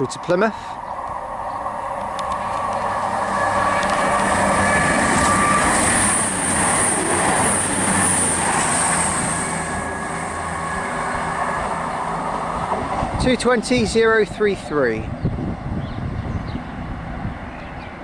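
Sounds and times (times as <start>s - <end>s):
wheel-on-rail noise: 0.0s - 14.3s
diesel train engines: 0.0s - 18.0s.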